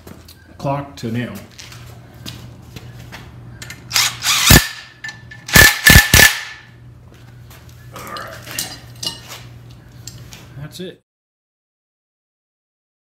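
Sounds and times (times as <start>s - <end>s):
steady low hum: 0.0s - 11.0s
impact wrench hammering: 3.9s - 6.7s.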